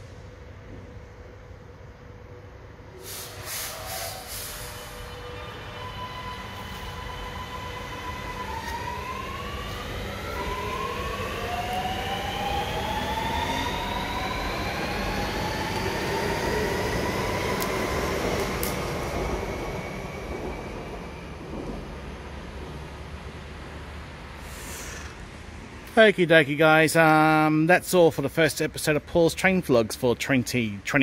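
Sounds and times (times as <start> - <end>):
train rumble: 0.0 - 30.8
train motor whine: 2.9 - 20.2.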